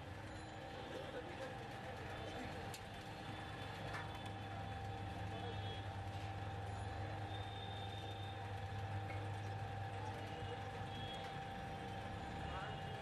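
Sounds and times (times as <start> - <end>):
faint constant whine: 0.0 - 13.0
outdoor street noise: 0.0 - 13.0
low mechanical hum: 1.8 - 13.0.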